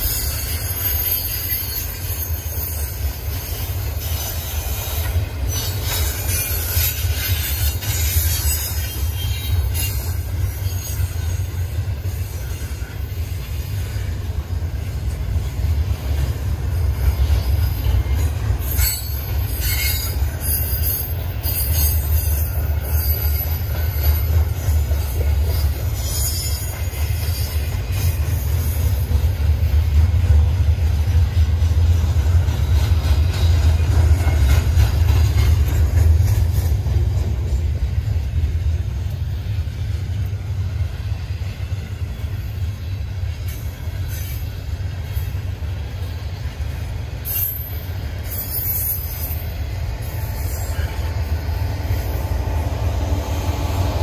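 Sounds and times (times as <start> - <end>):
high-pitched wheel squeal: 0.0 - 11.6, 17.5 - 27.7, 47.3 - 51.2
train cars rumbling past: 0.0 - 54.0.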